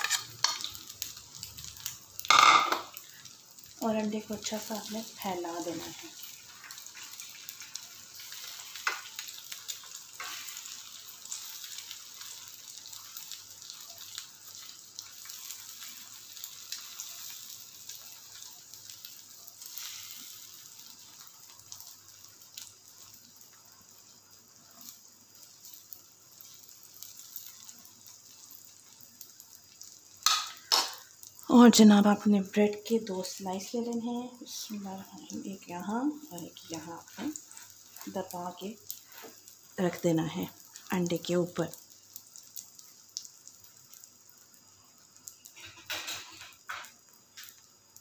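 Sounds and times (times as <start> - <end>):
metal spoon scraping pan: 0.0 - 0.7
egg sizzling in hot oil: 0.0 - 48.0.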